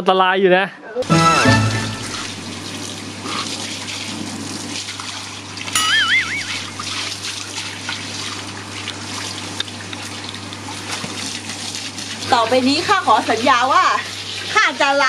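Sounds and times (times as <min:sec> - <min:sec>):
hose water splashing on fabric: 0:01.8 - 0:15.0
wobbly whistling sound effect: 0:05.8 - 0:06.8.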